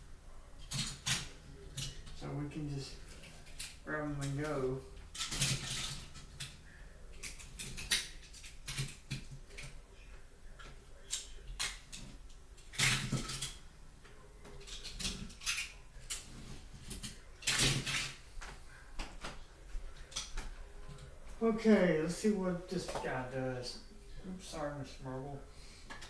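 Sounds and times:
toy cars clicking and clattering: 0.6s - 2.2s, 3.1s - 4.4s, 5.0s - 9.7s, 11.0s - 13.6s, 14.6s - 16.3s.

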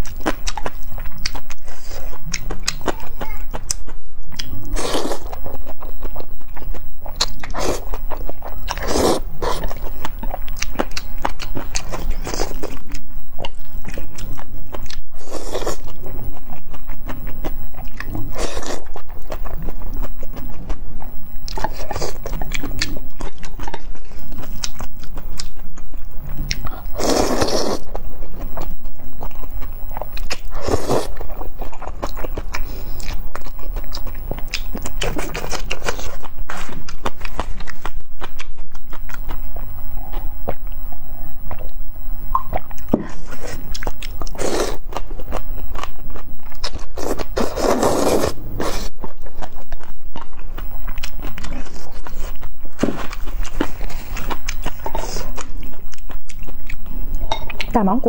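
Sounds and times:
wet chewing and smacking: 0.0s - 57.8s
slurping noodles: 8.8s - 9.6s, 27.0s - 27.9s, 30.6s - 31.1s, 47.0s - 48.9s.

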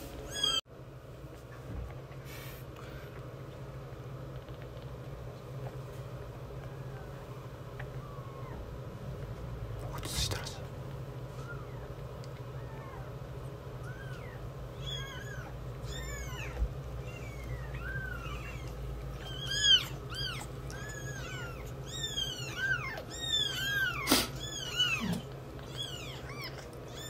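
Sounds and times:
kittens mewing: 6.7s - 8.9s, 11.3s - 27.0s.

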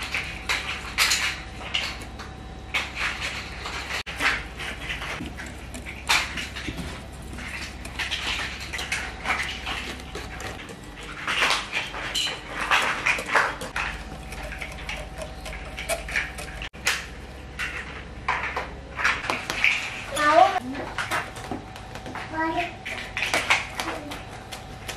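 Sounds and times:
whisk beating batter: 2.8s - 16.8s.

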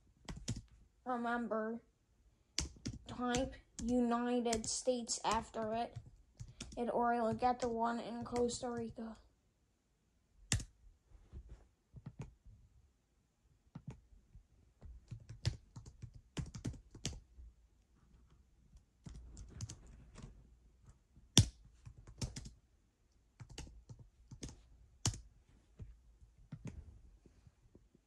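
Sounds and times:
typing on a keyboard: 0.2s - 0.7s, 2.6s - 9.0s, 15.0s - 17.2s, 19.0s - 19.9s, 21.4s - 22.6s, 23.4s - 25.2s.

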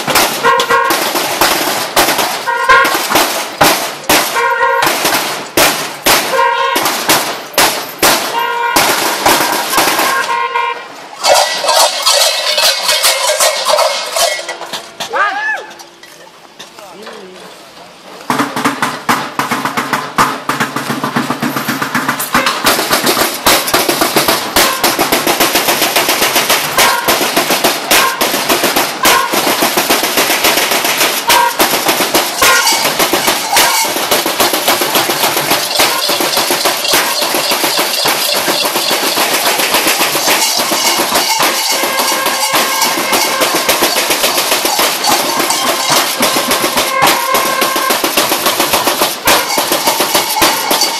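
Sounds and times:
bells clanging and rattling: 11.1s - 15.1s, 15.7s - 16.8s, 21.0s - 50.9s.

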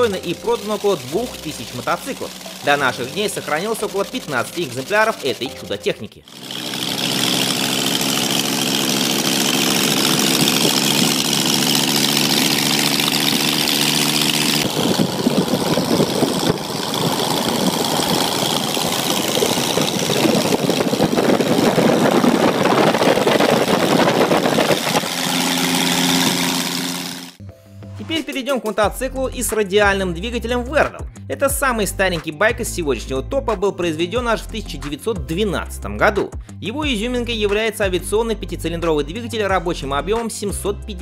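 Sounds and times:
rotary motorcycle engine running: 0.0s - 27.4s.

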